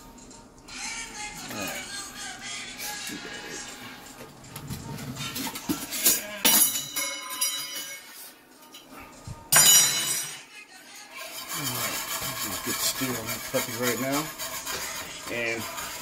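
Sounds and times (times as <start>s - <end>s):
kitchenware clinking: 4.8s - 10.5s.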